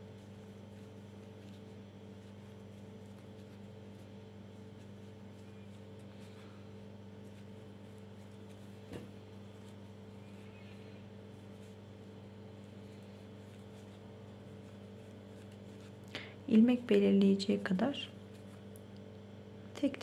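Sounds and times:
faint low machine hum: 0.0s - 20.0s.

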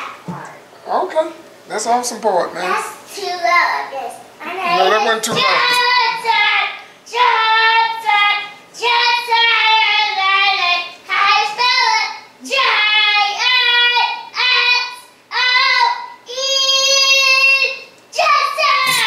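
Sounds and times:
boy singing loudly: 4.6s - 6.5s.

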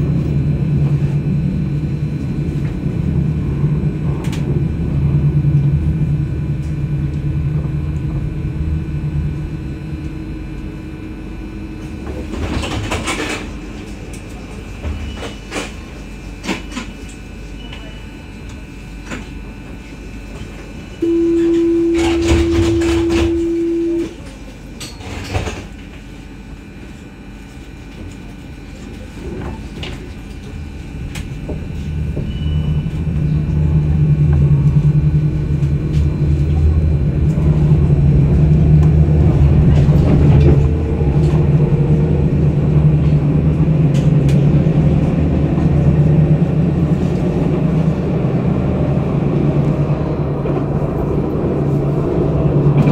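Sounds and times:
tram warning tone: 0.0s - 25.6s, 28.0s - 52.9s
tram motor hum and rail rumble: 0.0s - 52.9s
clunks: 21.0s - 24.1s.

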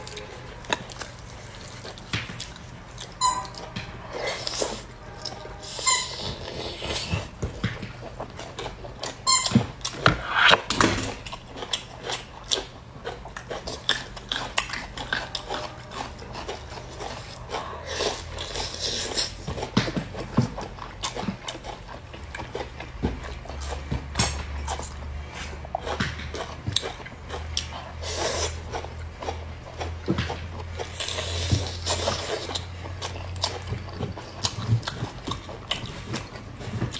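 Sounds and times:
chewing and lip smacks: 11.2s - 36.9s.

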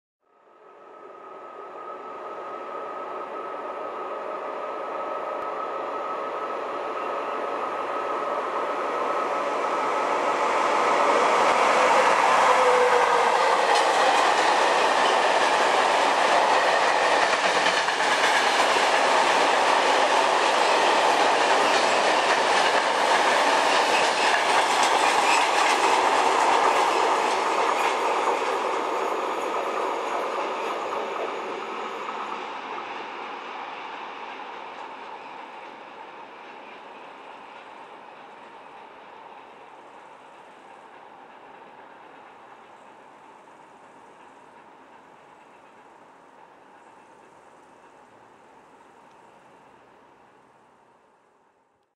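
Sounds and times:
freight train wheels clattering: 11.2s - 31.4s.

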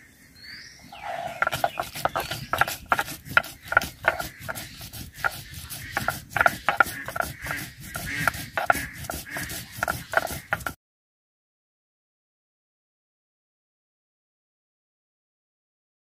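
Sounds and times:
stone roller scraping on slab: 1.0s - 10.8s
spices crushing clicks: 1.4s - 7.6s.

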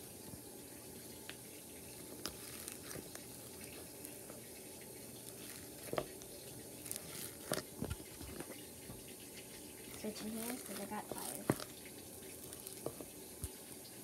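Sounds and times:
washing machine churning: 0.0s - 14.0s
slime clicking and crackling: 1.9s - 8.6s, 9.4s - 13.9s.

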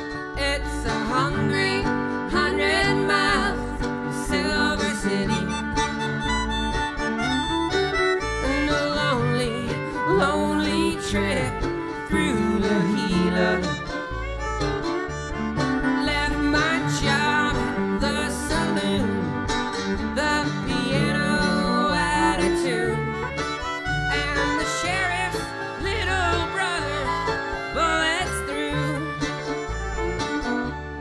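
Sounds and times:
folk band playing: 0.0s - 31.0s.

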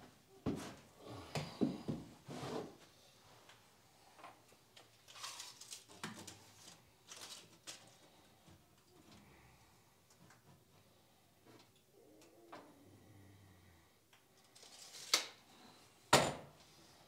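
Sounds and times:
short rustling scrapes: 2.2s - 2.9s.

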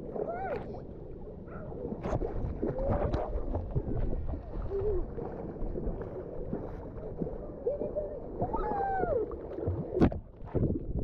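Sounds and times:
muffled water sloshing: 0.0s - 11.0s
muffled children's cries: 7.7s - 9.3s.

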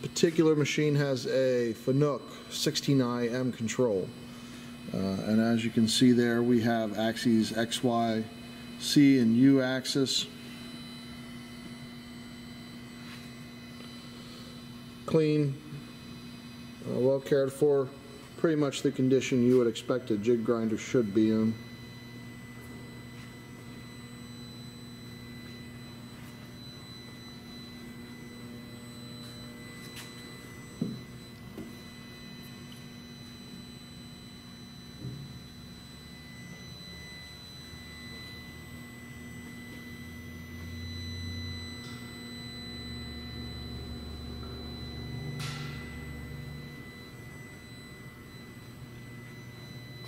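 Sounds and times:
electrical mains hum: 0.0s - 50.0s
faint high steady tones: 0.0s - 50.0s.

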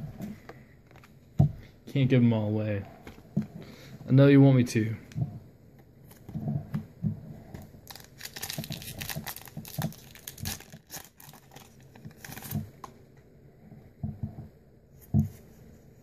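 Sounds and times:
foil pack crackling: 7.8s - 12.8s
soft handling knocks: 13.9s - 15.6s.

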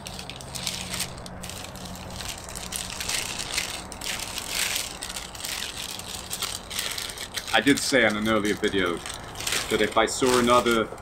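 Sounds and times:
paper crinkling and rustling: 0.0s - 11.0s.

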